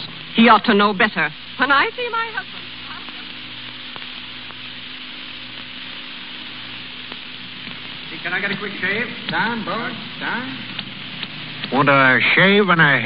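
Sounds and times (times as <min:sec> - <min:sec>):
recording hiss and crackle: 0:00.0 - 0:13.0
faint clicks: 0:10.7 - 0:11.8.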